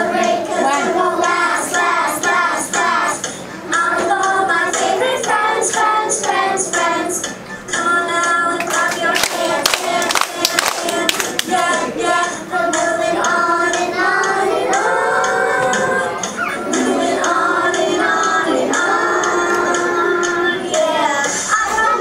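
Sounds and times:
children singing together: 0.0s - 22.0s
hand claps: 8.6s - 11.7s.

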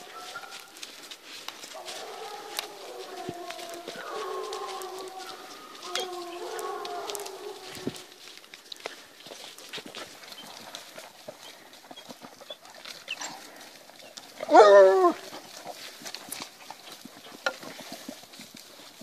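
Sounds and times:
rustling and crunching through grass: 0.0s - 19.0s
dog howling: 1.7s - 8.2s, 14.4s - 15.3s.

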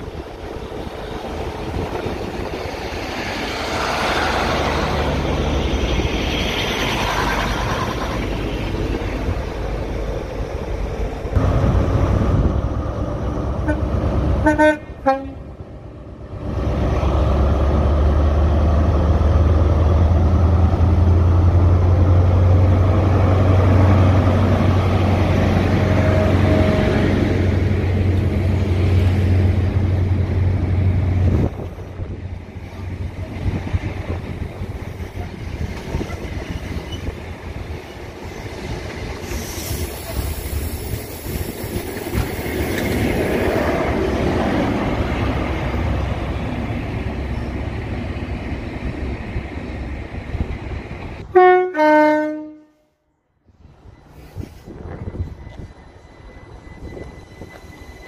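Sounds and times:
diesel railcar pulling away: 0.0s - 51.3s
train coaches rolling past: 0.0s - 58.0s
train horn toot: 13.6s - 15.5s, 25.8s - 27.0s, 51.3s - 53.0s.

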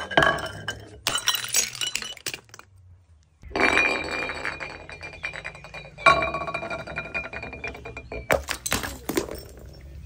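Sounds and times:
glass clattering and ringing: 0.0s - 2.6s, 3.4s - 9.8s
glass bottles striking: 0.0s - 2.7s, 3.4s - 9.8s.

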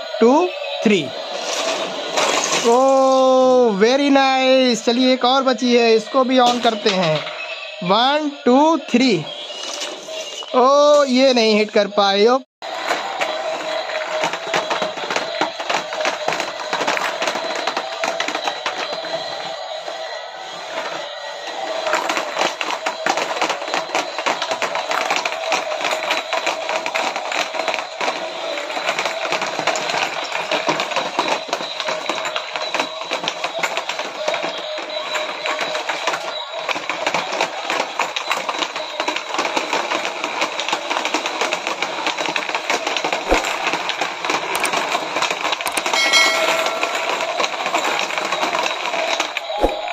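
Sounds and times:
plastic clattering: 1.1s - 3.2s, 3.9s - 11.7s, 12.6s - 49.9s
brief chime: 45.9s - 48.4s.

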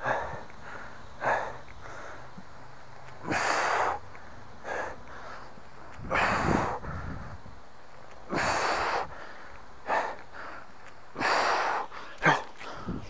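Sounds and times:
man breathing hard: 0.0s - 13.0s.

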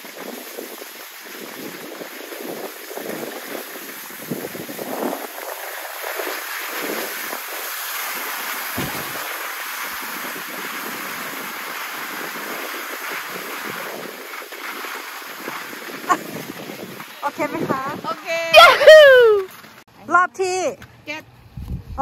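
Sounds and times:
wind on microphone: 0.0s - 19.4s, 21.4s - 22.0s
skis scraping over snow: 0.0s - 19.8s
sharp knock: 8.8s - 9.6s.

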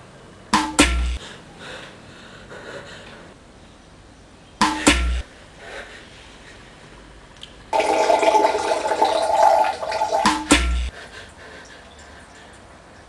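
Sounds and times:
loud knock with deep thud: 4.6s - 5.2s
man urinating into toilet: 7.7s - 13.0s.

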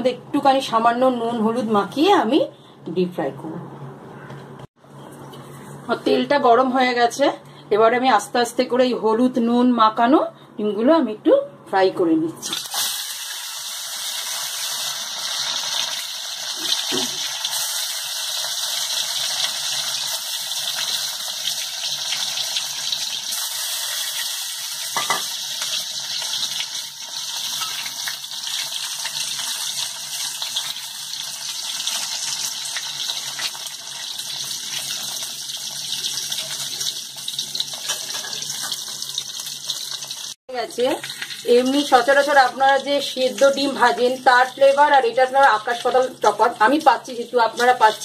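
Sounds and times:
eggs sizzling in hot oil: 12.4s - 48.0s.

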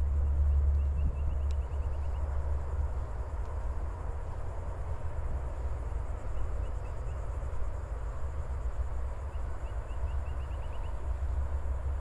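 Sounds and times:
low outdoor rumble: 0.0s - 12.0s
small bird chirping: 9.3s - 11.0s.

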